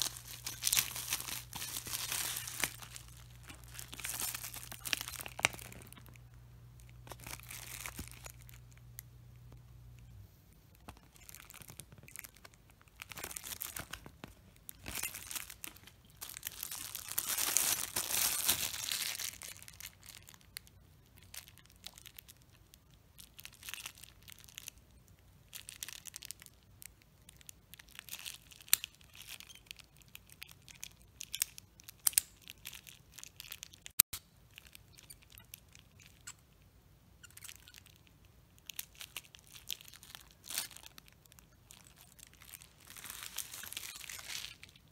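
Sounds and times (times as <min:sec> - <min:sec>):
packaging crinkling: 0:00.0 - 0:09.0, 0:10.8 - 0:22.5, 0:38.6 - 0:44.9.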